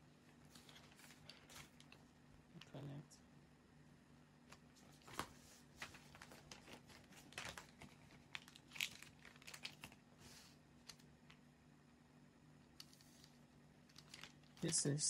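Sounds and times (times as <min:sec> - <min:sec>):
paper rustling: 0:00.4 - 0:02.1, 0:04.5 - 0:11.0, 0:12.8 - 0:15.0.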